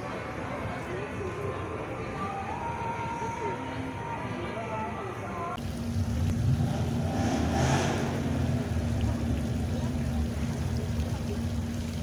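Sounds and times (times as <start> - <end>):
fountain water splashing: 5.6 - 12.0
low rumble of wind on microphone: 5.7 - 12.0.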